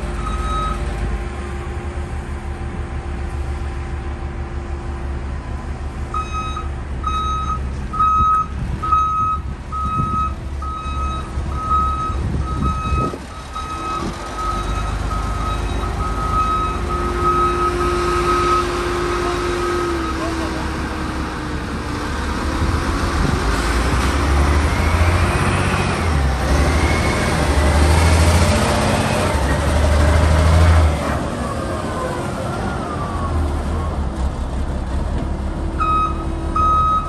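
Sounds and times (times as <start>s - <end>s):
diesel engine running: 0.0s - 37.0s
truck backup alarm beeping: 0.1s - 0.9s, 6.1s - 19.1s, 35.8s - 37.0s.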